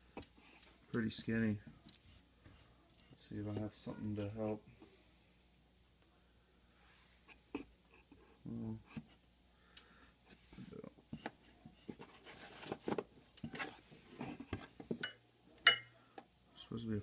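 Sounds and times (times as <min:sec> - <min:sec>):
cardboard box rustling: 0:11.2 - 0:14.9.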